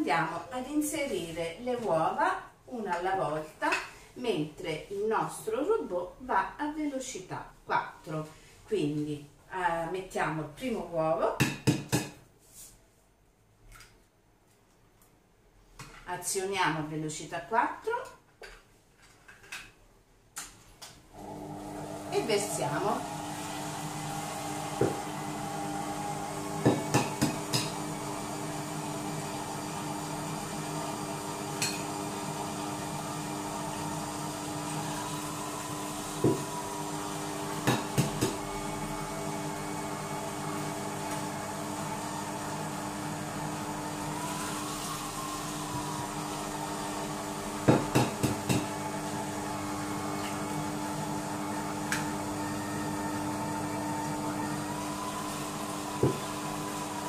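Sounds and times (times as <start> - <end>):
food processor motor humming: 21.1 - 57.0.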